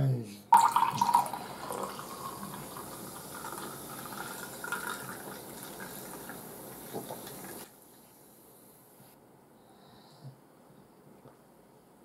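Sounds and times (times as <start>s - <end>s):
fizzy drink pouring into glass: 0.5s - 7.7s.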